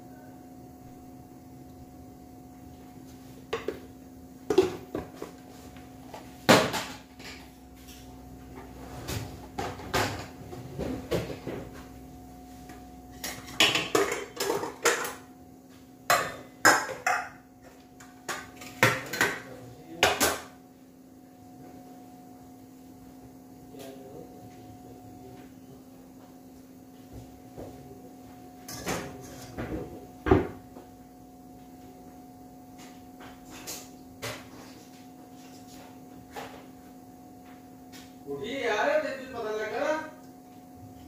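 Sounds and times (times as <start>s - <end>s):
faint steady hum: 0.0s - 41.0s.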